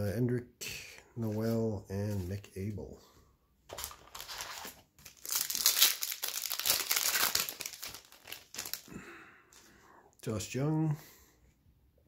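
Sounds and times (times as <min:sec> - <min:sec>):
foil wrapper crinkling: 0:03.7 - 0:08.9.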